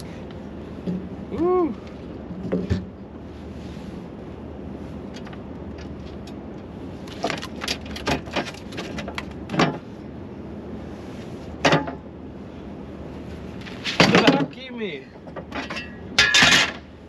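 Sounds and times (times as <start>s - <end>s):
steady background noise: 0.0s - 17.0s
gear knocking and clattering on boat: 5.1s - 9.9s, 13.6s - 16.9s.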